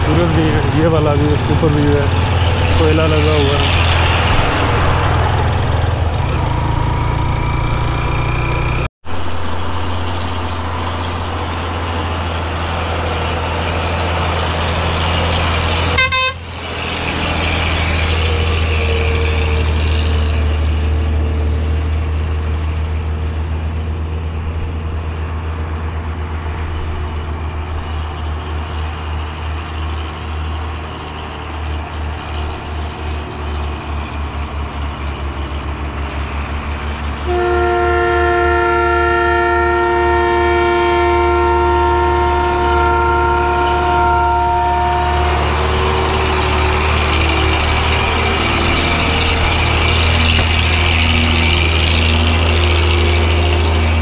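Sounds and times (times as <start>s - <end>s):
heavy truck traffic: 0.0s - 54.0s
short horn toot: 16.0s - 16.5s, 37.2s - 45.5s.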